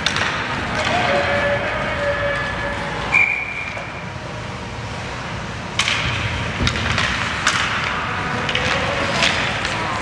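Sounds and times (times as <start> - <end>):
sticks and puck clacking: 0.0 - 4.1, 5.6 - 10.0
referee's whistle: 3.1 - 3.8.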